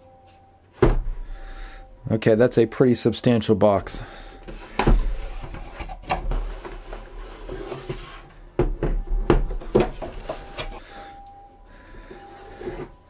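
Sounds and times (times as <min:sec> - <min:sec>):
cardboard rustling and scraping: 0:04.4 - 0:10.8.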